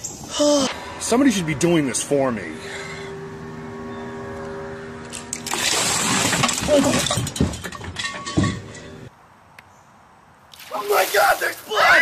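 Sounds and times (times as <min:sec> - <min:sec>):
water pouring and splashing: 0:05.4 - 0:08.3, 0:10.5 - 0:11.9.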